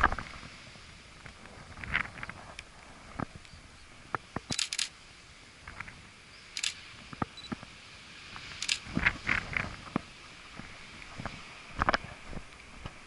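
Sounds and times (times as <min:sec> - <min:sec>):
camera shutter clicks: 0:04.5 - 0:04.9, 0:06.6 - 0:06.8, 0:08.5 - 0:08.8.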